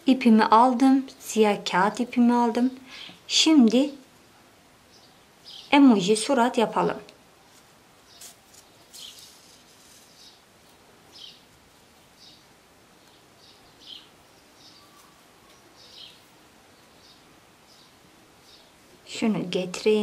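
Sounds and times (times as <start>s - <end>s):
low steady hiss: 0.0s - 20.0s
crinkly paper yarn rustles: 7.4s - 12.2s.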